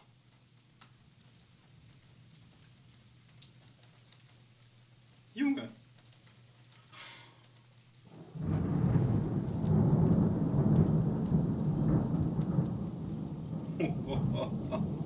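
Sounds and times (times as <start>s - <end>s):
thunder rumbling: 8.1s - 15.0s.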